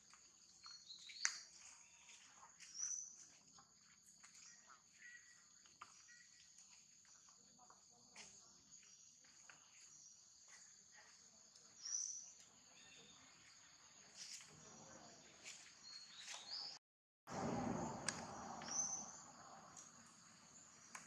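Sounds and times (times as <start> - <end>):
insects chirring: 0.0 - 16.6, 17.4 - 21.0
bird chirps: 0.3 - 3.4, 4.3 - 6.8, 11.7 - 16.8, 18.5 - 19.6.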